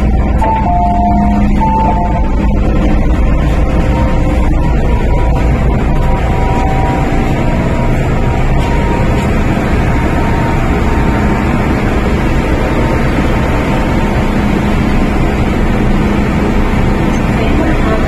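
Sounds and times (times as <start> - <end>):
station ambience: 0.0 - 18.0
train ventilation and electrical hum: 0.0 - 18.0.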